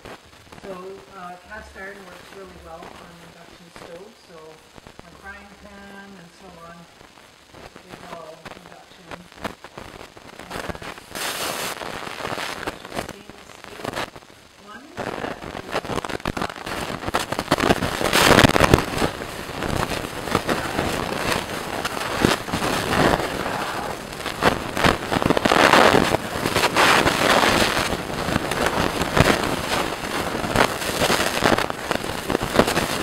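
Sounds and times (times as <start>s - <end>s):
jam boiling and popping: 7.0s - 33.0s.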